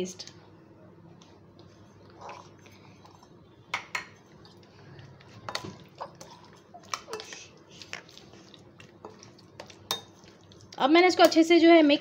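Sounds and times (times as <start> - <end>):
wet squelching of mixing: 4.2 - 11.4.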